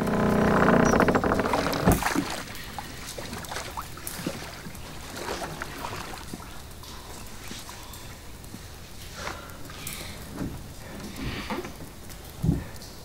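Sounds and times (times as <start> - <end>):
low rattling buzz: 0.0 - 2.5
knocks and creaks: 0.0 - 2.7.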